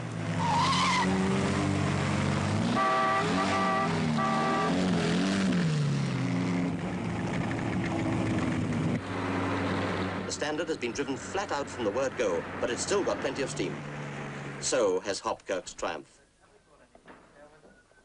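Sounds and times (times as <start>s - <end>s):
car horn blasts: 2.7s - 4.9s.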